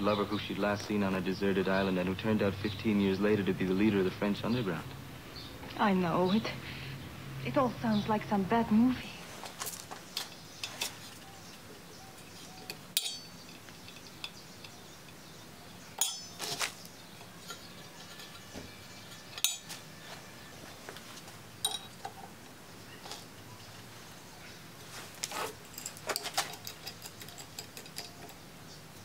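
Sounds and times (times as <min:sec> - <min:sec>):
metal clinks and taps: 0:12.5 - 0:15.3, 0:16.0 - 0:16.6, 0:19.1 - 0:19.9, 0:21.6 - 0:22.3, 0:25.6 - 0:28.4.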